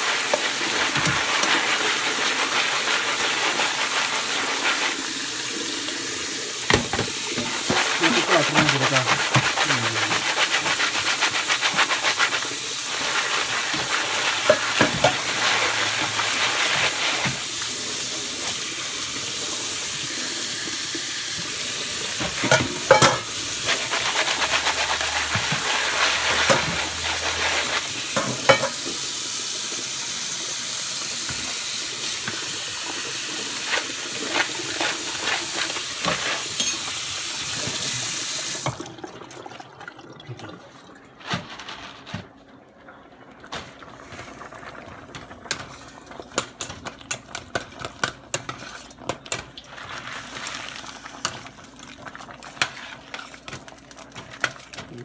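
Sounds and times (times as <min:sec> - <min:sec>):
tap water splashing: 0:06.6 - 0:07.9, 0:38.6 - 0:39.0.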